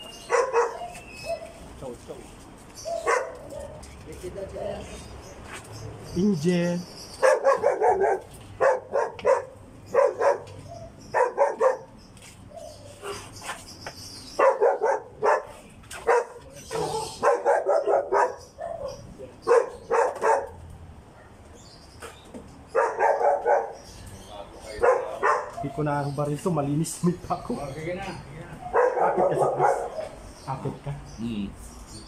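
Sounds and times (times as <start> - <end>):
dog barking: 0.2 - 1.6, 2.9 - 3.8, 7.2 - 12.0, 14.4 - 21.4, 22.7 - 23.8, 24.7 - 25.8, 28.6 - 30.2.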